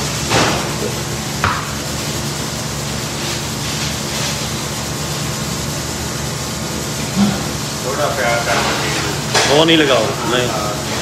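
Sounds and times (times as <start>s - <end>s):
kitchen machinery rushing hum: 0.0s - 11.0s.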